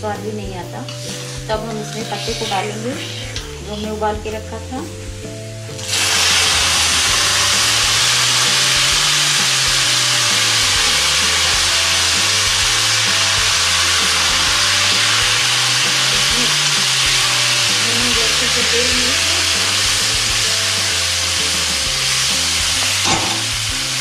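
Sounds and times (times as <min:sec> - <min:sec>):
wet leaves frying in hot oil: 0:05.8 - 0:24.0.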